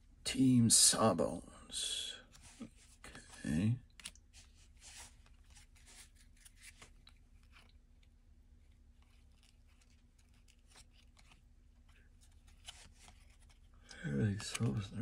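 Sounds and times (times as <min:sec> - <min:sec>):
low steady hum: 0:00.0 - 0:15.0
trading cards clicking and rustling: 0:09.0 - 0:15.0.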